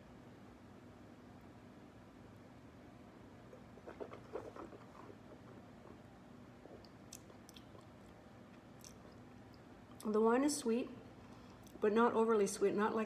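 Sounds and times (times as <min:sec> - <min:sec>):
wet sipping: 0:03.5 - 0:09.7
lip-smacking clicks: 0:06.8 - 0:08.2.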